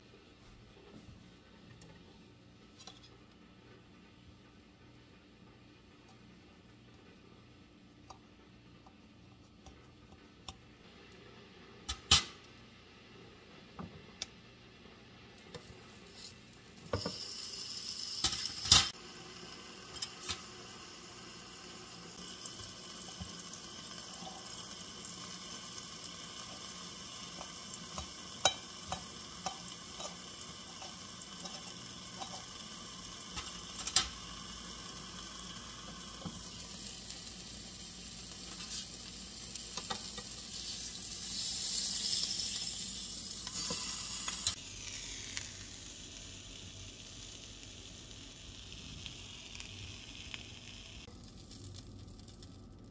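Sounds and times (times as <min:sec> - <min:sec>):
sausage sizzling: 0:15.5 - 0:52.9.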